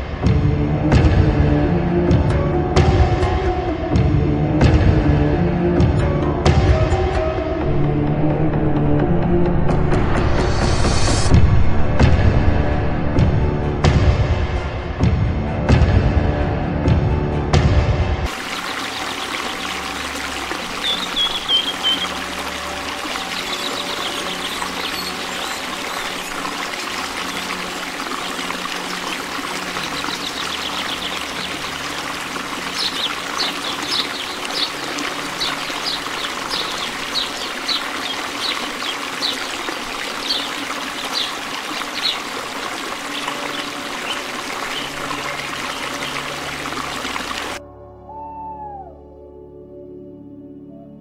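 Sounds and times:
water trickling and pouring: 18.3 - 47.6.

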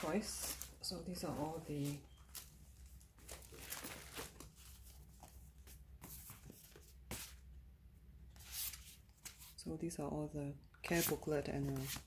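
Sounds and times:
paper packaging crinkling: 0.0 - 5.3.

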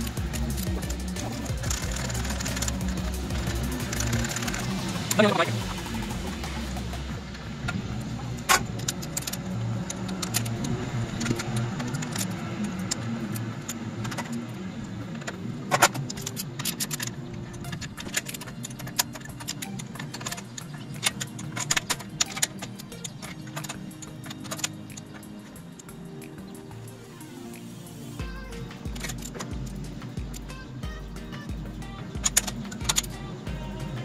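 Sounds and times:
torque wrench clicking: 0.0 - 7.8.

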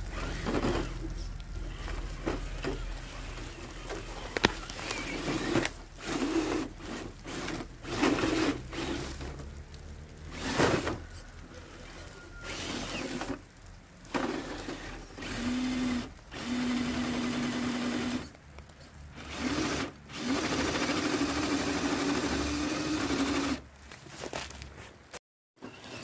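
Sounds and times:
electric motor whirring: 0.0 - 11.0, 12.4 - 13.5, 14.1 - 18.4, 19.2 - 23.6.

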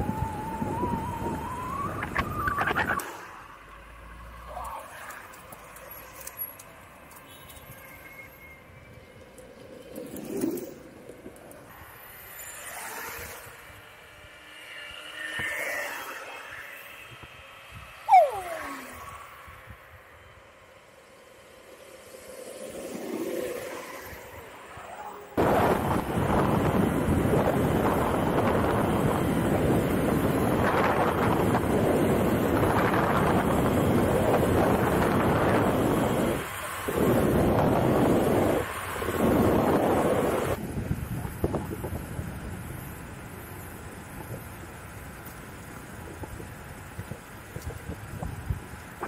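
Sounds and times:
wind buffeting microphone: 0.0 - 3.0, 25.4 - 43.2, 45.9 - 49.0
skateboard rolling over rough ground: 8.8 - 13.9.

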